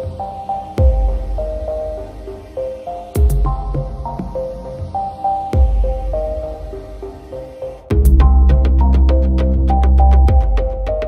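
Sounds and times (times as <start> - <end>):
synth melody: 0.0 - 11.0
deep bass: 7.9 - 11.0.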